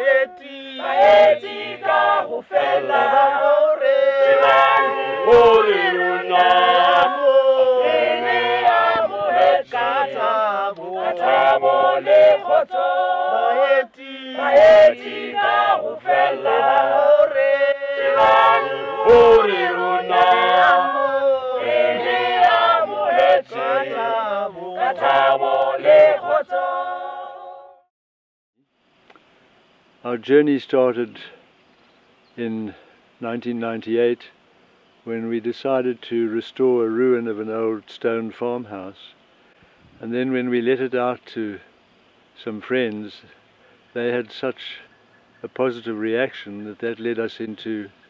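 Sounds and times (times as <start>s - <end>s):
mixed choir singing a cappella: 0.0s - 27.9s.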